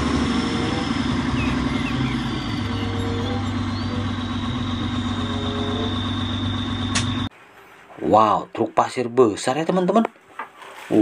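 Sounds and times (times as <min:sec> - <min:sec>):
diesel truck engine running: 0:00.0 - 0:07.3.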